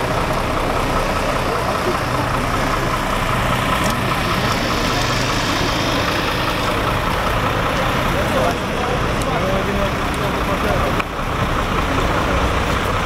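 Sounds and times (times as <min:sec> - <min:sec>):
engine idling: 0:00.0 - 0:13.0
steady whine: 0:00.0 - 0:13.0.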